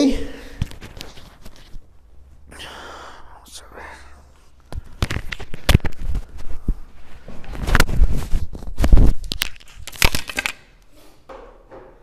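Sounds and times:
rustling: 0:04.9 - 0:10.0.

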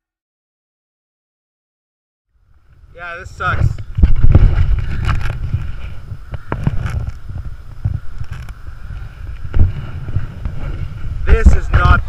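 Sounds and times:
wind buffeting microphone: 0:02.5 - 0:12.0.

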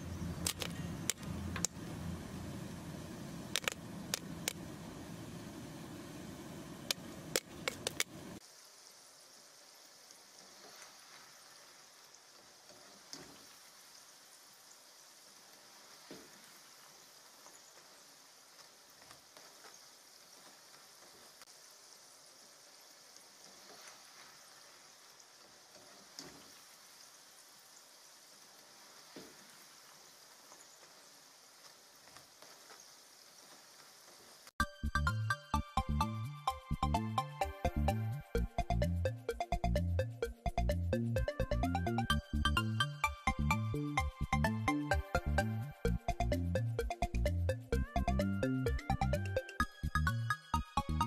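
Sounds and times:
popcorn kernels popping: 0:03.5 - 0:04.6
fries sizzling in hot oil: 0:08.4 - 0:34.5.

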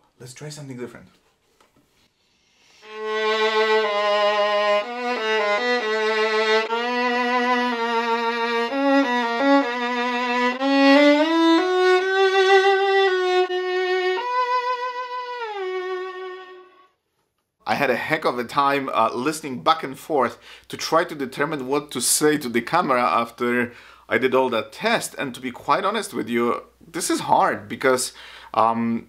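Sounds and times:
solo violin melody: 0:02.8 - 0:17.0.

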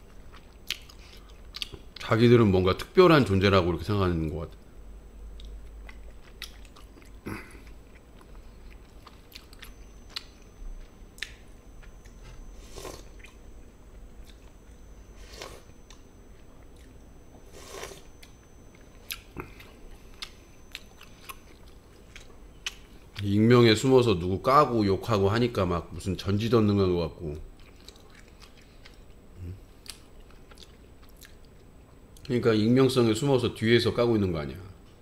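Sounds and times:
person chewing food: 0:00.0 - 0:02.0, 0:05.3 - 0:23.2, 0:27.5 - 0:32.3
food crunching: 0:00.0 - 0:02.1, 0:05.3 - 0:23.3, 0:27.5 - 0:32.4.

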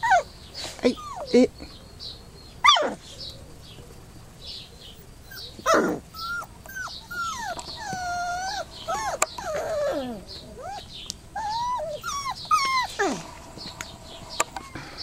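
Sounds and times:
puppy yelping: 0:00.0 - 0:00.3, 0:00.9 - 0:01.4, 0:02.6 - 0:03.1, 0:05.2 - 0:13.4
puppy whining: 0:00.0 - 0:01.5, 0:02.6 - 0:03.2, 0:04.9 - 0:14.8.

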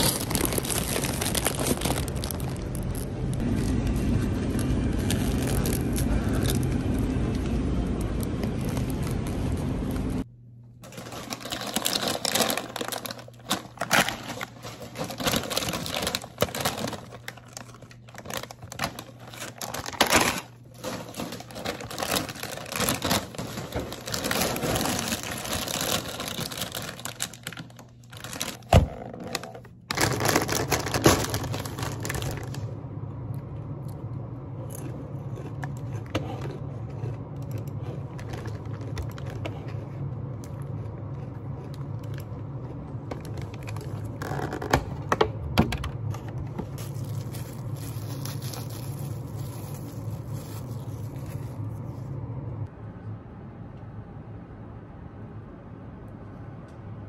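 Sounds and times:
plastic snack bags crinkling: 0:00.0 - 0:03.7, 0:04.5 - 0:09.8, 0:10.8 - 0:32.7, 0:34.8 - 0:45.0, 0:46.6 - 0:52.0
plastic container crackling: 0:00.0 - 0:03.8, 0:10.8 - 0:32.6, 0:46.6 - 0:51.7
potato chips crunching: 0:00.0 - 0:09.9, 0:10.8 - 0:32.6, 0:34.6 - 0:44.5, 0:46.7 - 0:51.9
steady low hum: 0:00.0 - 0:57.0.

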